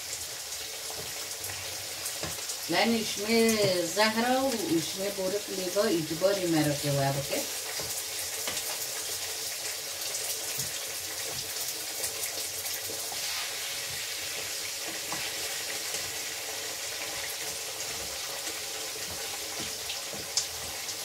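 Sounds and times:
vegetables sizzling in a frying pan: 0.0 - 21.0
wooden spatula knocking pan: 18.9 - 20.8.

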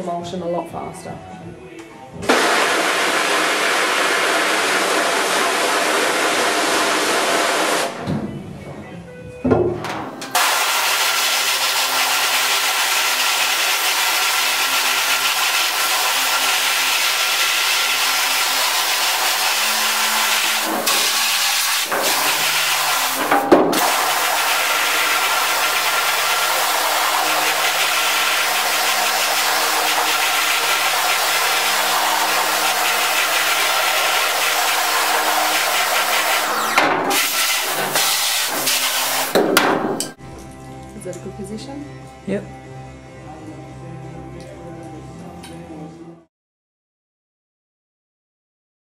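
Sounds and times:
pump motor humming: 2.2 - 8.0, 10.2 - 40.2
pressure washer spray hissing: 2.3 - 7.9, 10.3 - 40.2.

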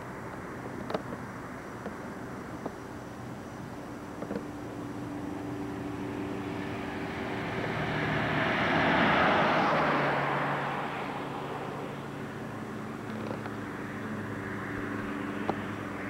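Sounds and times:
vehicle passing by: 5.3 - 16.0.

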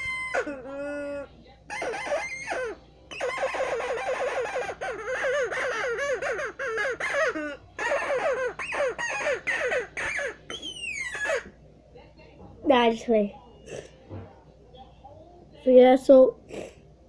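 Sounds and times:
toy squeaker chirping: 0.0 - 11.6.

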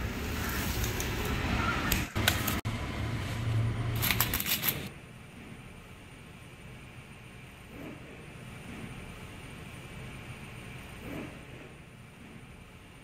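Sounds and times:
steady low hum: 2.2 - 13.0
bicycle parts clicking and rattling: 4.0 - 4.9.

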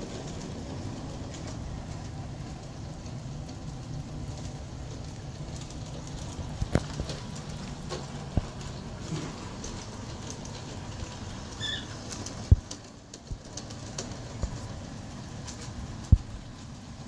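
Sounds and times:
model train motor hum: 0.0 - 17.0.

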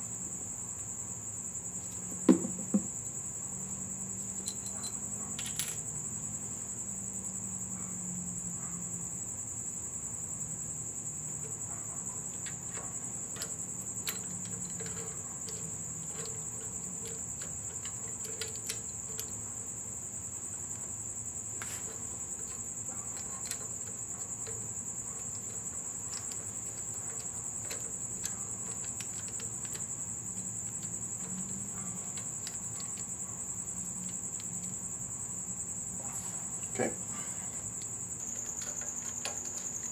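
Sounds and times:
crickets trilling: 0.0 - 39.9
metallic clicks of engine parts: 11.3 - 34.9, 37.6 - 39.9.

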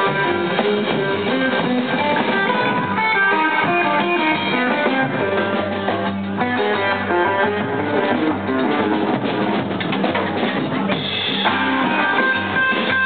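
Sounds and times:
drum kit: 0.0 - 13.0
electric guitar: 0.0 - 13.0
upright double bass: 0.0 - 13.0.

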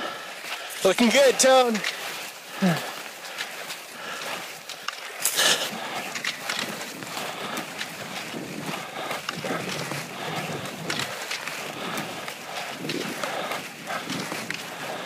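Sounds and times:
skis swishing over snow: 0.0 - 15.0
ski pole plant clicks: 4.6 - 6.9.

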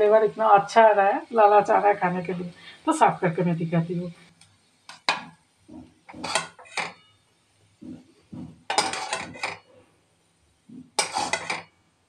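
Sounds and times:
metal spatula scraping metal pan: 6.1 - 7.1, 8.7 - 9.7, 10.9 - 11.7.

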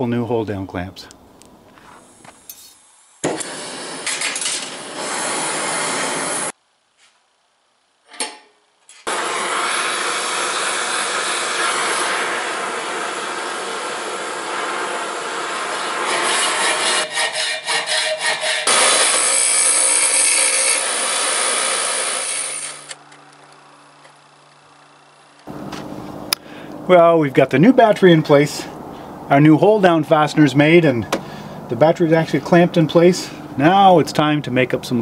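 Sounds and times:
cutting torch flame hissing: 9.1 - 16.8.

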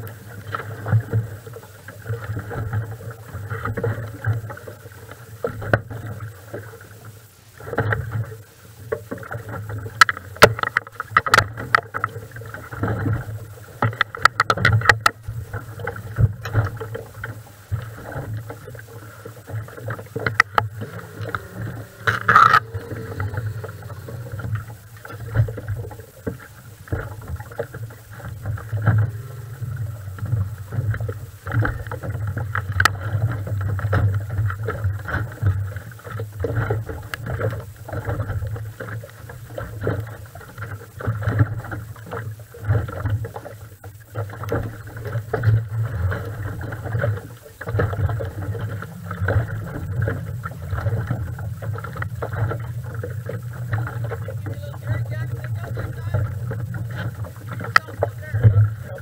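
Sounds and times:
water slapping against hull: 0.0 - 59.0
low rumble: 20.4 - 26.1, 27.0 - 32.3.

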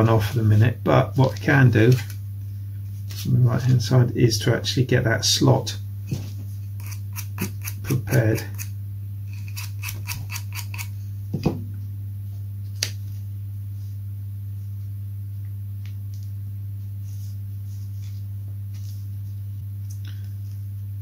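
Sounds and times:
low electrical hum: 0.0 - 21.0
sanding block rasping: 6.8 - 8.7, 9.4 - 10.9.

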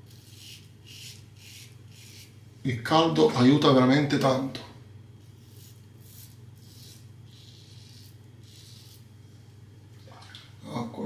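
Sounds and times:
razor scraping stubble: 0.0 - 2.4, 5.2 - 9.1.

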